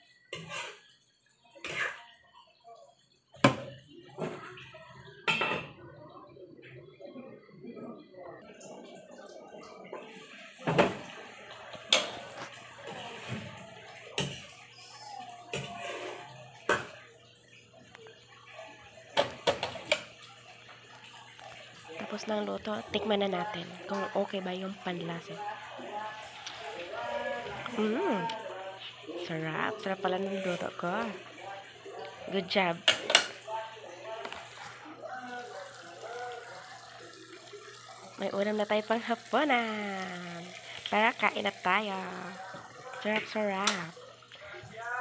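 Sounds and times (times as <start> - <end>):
metal spatula scraping frying pan: 0.3 - 0.9.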